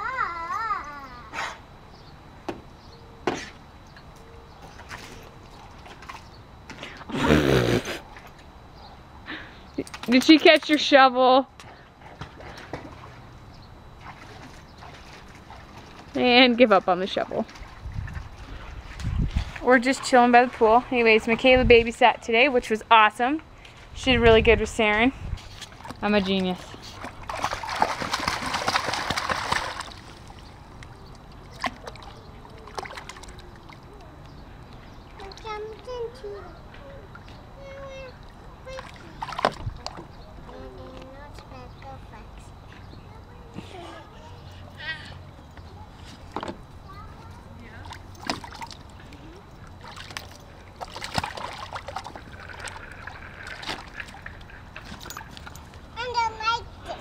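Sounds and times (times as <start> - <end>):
water sloshing and splashing: 4.6 - 6.9, 11.8 - 21.5, 25.4 - 34.3, 34.9 - 35.9, 37.0 - 40.4, 47.4 - 56.0
toy shovel splashing water: 27.0 - 30.3
light splashes and knocks: 38.8 - 40.1, 47.9 - 48.9, 49.8 - 55.6.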